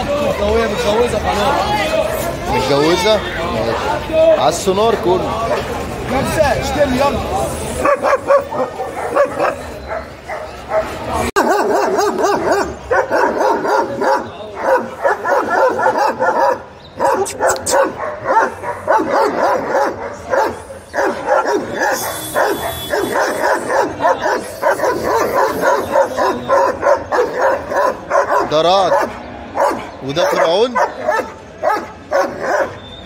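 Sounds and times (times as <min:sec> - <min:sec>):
dogs barking: 0:05.4 - 0:05.9, 0:07.7 - 0:32.9.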